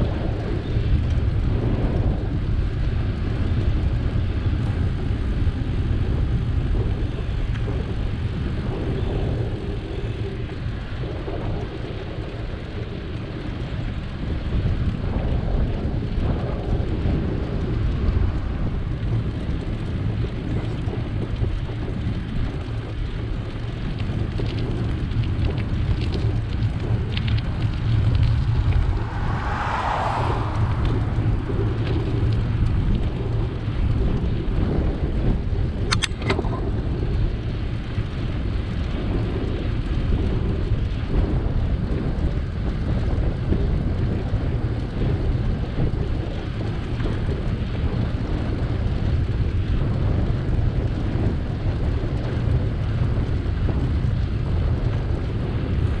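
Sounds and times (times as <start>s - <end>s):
bicycle tyre rumble: 0.0s - 56.0s
wind buffeting microphone: 0.0s - 56.0s
light clicks: 35.9s - 36.5s.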